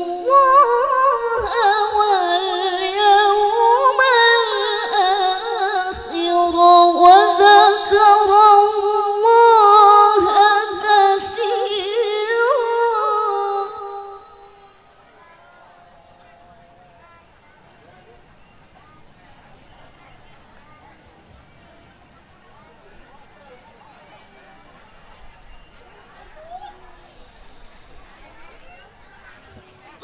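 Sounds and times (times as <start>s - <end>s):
woman reciting through microphone: 0.0s - 15.4s.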